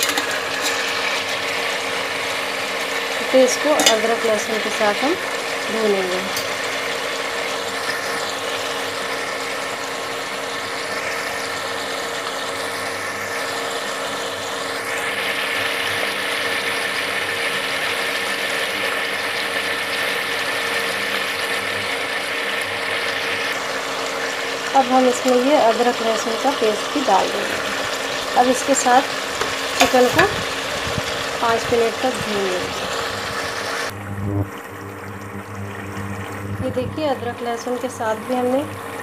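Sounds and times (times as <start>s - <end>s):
chicken frying in hot oil: 0.0s - 39.0s
faint steady hum: 17.7s - 39.0s.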